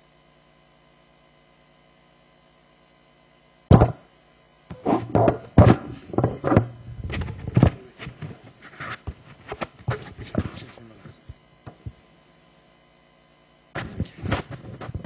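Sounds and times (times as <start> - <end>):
microphone handling thumps: 3.7 - 4.0, 4.7 - 12.1, 13.8 - 15.0
heavy knocks and rubbing: 4.7 - 10.7.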